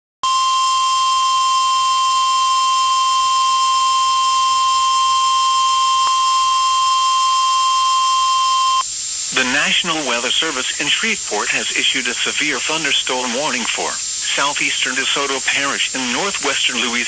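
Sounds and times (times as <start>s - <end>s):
loud steady alarm tone: 0.2s - 17.0s
light hiss: 8.8s - 17.0s.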